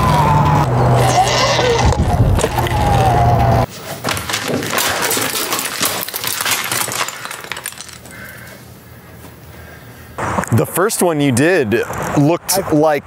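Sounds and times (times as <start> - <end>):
wind rumble: 0.0 - 3.7
sharp crackles and clinks: 4.0 - 8.6.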